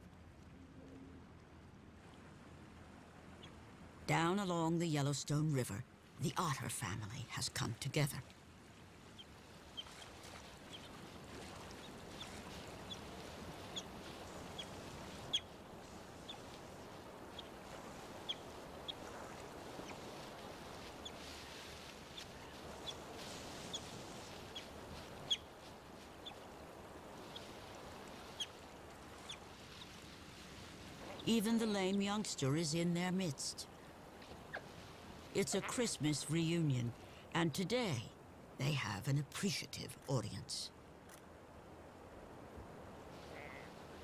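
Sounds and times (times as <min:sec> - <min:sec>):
otters chirping: 0:18.2 - 0:19.1, 0:23.6 - 0:25.5.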